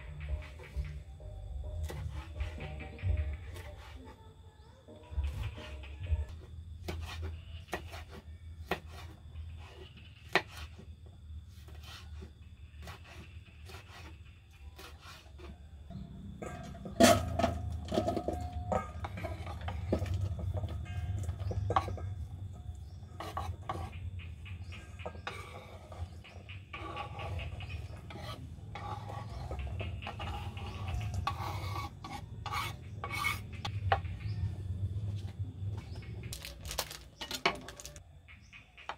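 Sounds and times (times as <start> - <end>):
knife scraping cutting board: 6.8 - 10.8, 11.5 - 14.2, 14.8 - 15.4, 25.0 - 33.7.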